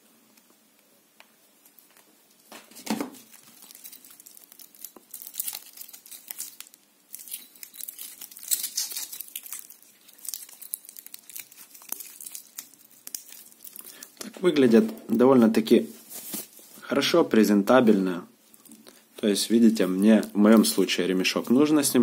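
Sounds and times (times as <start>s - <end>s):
rustling handling noise: 1.2s - 22.0s
metal bracelet links clinking: 3.3s - 12.6s.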